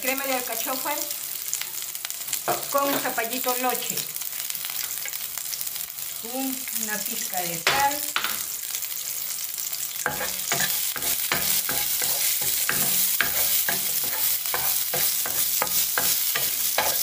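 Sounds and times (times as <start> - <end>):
onion frying in oil: 0.0 - 17.0
wooden spatula scraping a pan: 10.0 - 17.0.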